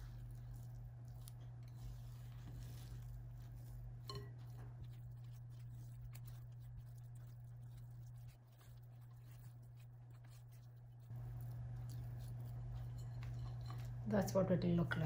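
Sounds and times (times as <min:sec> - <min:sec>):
spatula folding batter in bowl: 0:00.0 - 0:14.0
steady low hum: 0:00.0 - 0:15.0.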